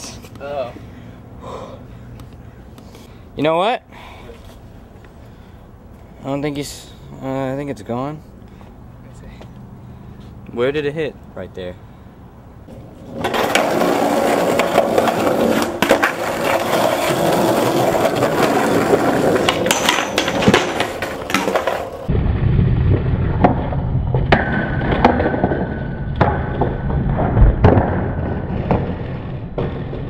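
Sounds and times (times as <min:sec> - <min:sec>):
skateboard wheels rolling on concrete: 0:07.3 - 0:30.0
skateboard knocks: 0:13.2 - 0:22.1.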